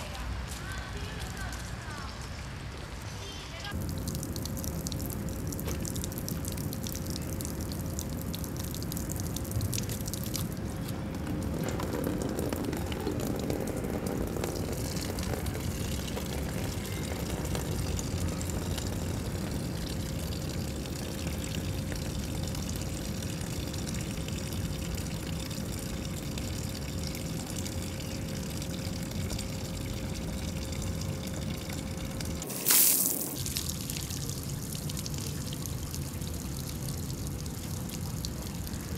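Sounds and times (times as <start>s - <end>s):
loud water burst: 32.3s - 35.0s
water jet splashing into bucket: 32.3s - 35.2s.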